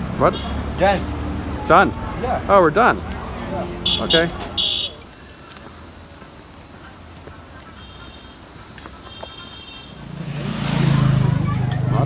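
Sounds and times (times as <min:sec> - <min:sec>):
insects buzzing: 0:03.8 - 0:12.0.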